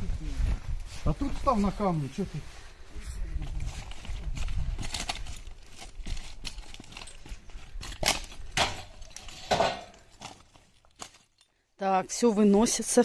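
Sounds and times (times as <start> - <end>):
metal frame knocking on stones: 8.1 - 10.2.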